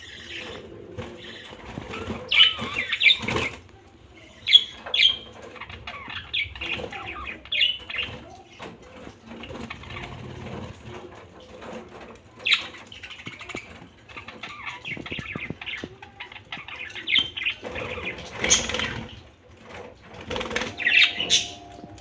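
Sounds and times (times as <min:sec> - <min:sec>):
sharp bird calls: 0:00.0 - 0:03.6, 0:20.3 - 0:21.8
budgerigars chirping and chattering: 0:00.0 - 0:22.0.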